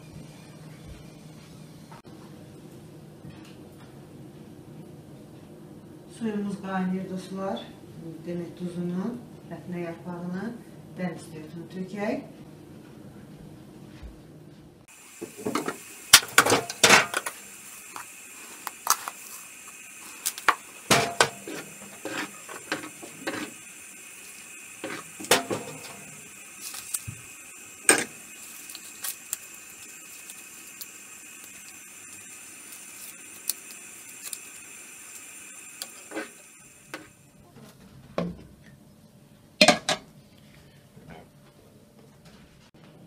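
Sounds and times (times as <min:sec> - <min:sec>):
steady hiss: 0:14.8 - 0:37.4.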